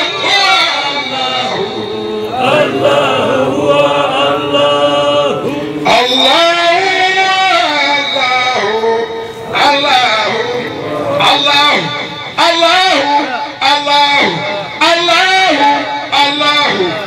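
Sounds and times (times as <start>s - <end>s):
man chanting through loudspeaker: 0.0s - 17.0s
voices singing together: 1.0s - 7.9s.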